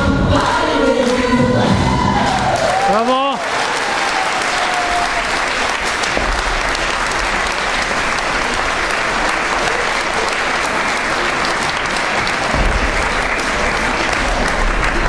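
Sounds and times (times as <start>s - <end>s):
audience applauding: 1.8s - 15.0s.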